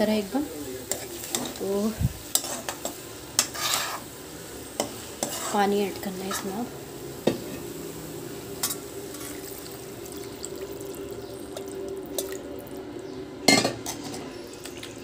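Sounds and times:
stirring in pan: 0.8s - 12.4s
water poured into pan: 9.1s - 12.7s.

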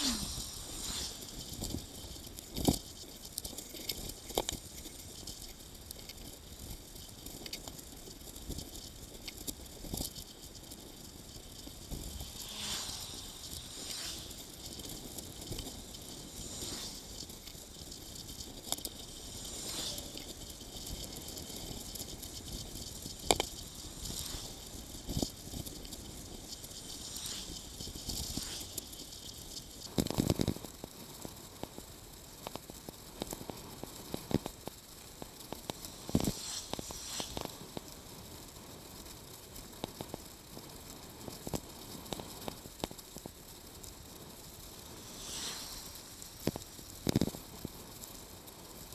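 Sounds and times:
bicycle tyre hiss: 0.0s - 5.5s, 8.3s - 42.8s, 43.4s - 48.9s
bicycle rattles and knocks: 1.2s - 36.4s.

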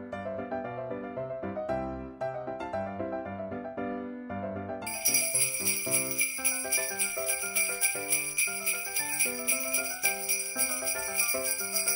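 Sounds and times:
simple upbeat tune: 4.9s - 11.9s
sleigh bells jingling: 4.9s - 11.9s.

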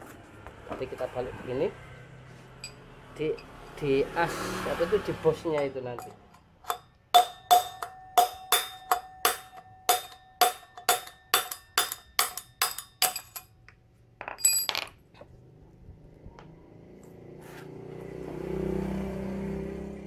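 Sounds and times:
hammer striking steel rod: 5.6s - 13.5s.

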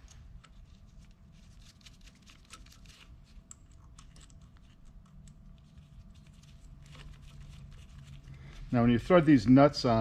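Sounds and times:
low steady hum: 0.0s - 10.0s.

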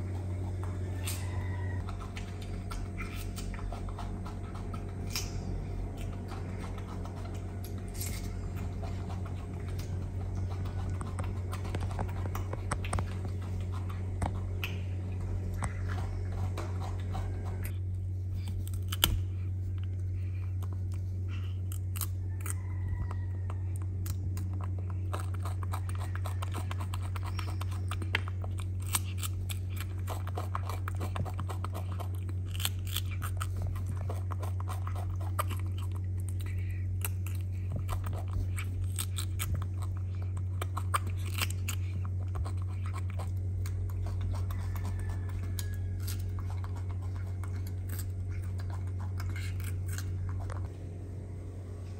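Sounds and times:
monkey chewing cucumber: 0.0s - 50.7s
steady low hum: 0.0s - 51.9s.

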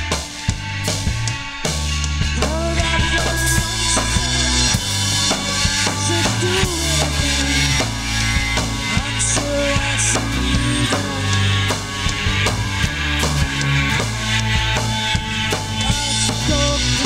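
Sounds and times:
drum kit beat: 0.0s - 17.0s
rock band playing live: 0.0s - 17.0s.

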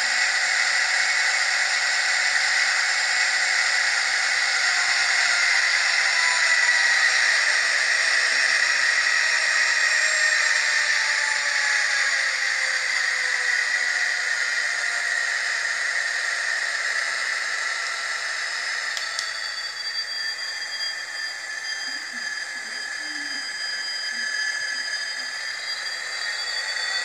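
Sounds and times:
faint whine shifting in pitch: 0.0s - 27.0s
thin hissy locomotive engine sound: 0.0s - 27.0s
click: 18.9s - 19.4s.

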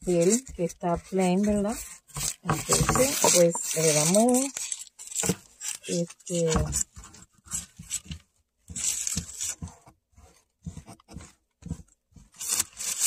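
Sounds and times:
paper crinkling and rustling: 0.0s - 13.0s.

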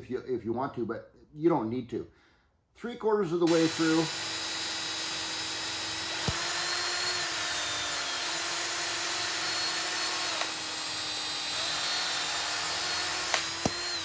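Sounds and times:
cordless drill whining: 3.5s - 14.0s.

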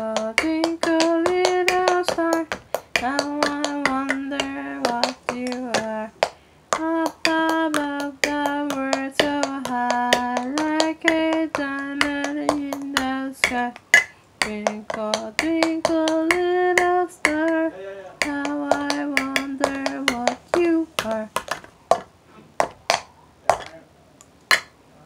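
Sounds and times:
hand taps or claps: 0.0s - 23.8s.

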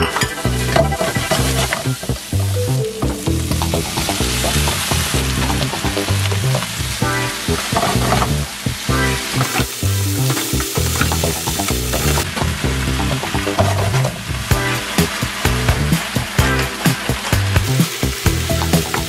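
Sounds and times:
background music with bass: 0.0s - 19.0s
food sizzling in a wok: 0.4s - 19.0s.

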